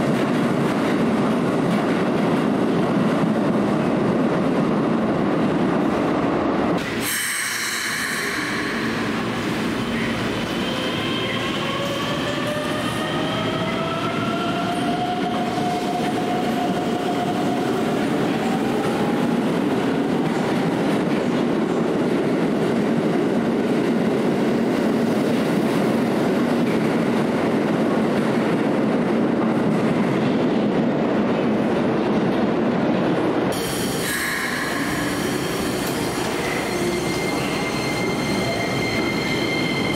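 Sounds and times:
train cars rumbling: 0.0 - 39.9.

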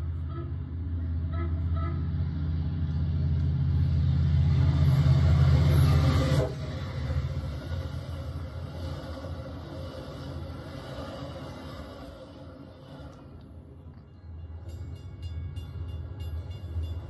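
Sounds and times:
diesel locomotive engine hum: 0.0 - 17.0
train wheels rumbling: 0.0 - 17.0
train horn: 1.3 - 2.2.

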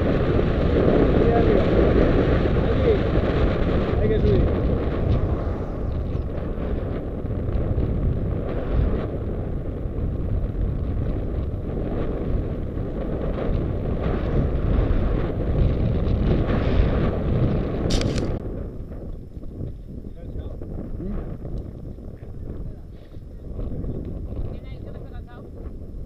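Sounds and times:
wind on microphone: 0.0 - 26.0
sharp click: 17.9 - 18.4.

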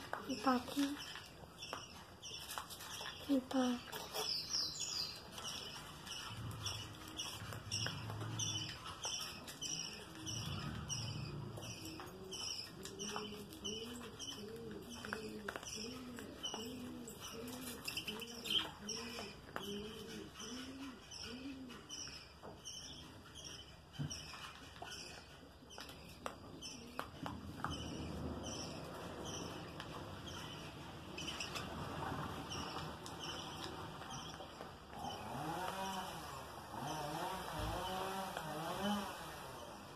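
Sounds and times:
dove cooing: 5.4 - 22.3.

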